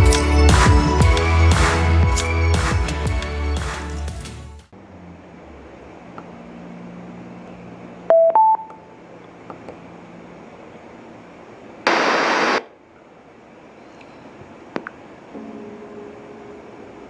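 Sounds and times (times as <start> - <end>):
two-note rising beep: 8.1 - 8.8.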